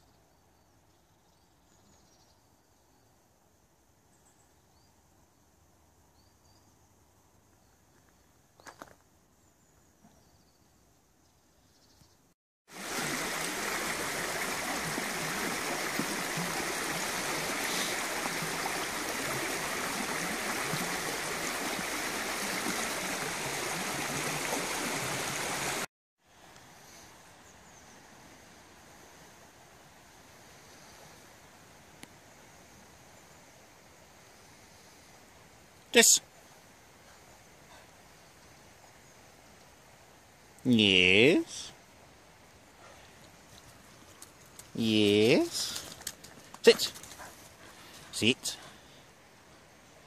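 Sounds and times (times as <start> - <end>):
stream rushing over rocks: 12.7 - 25.9.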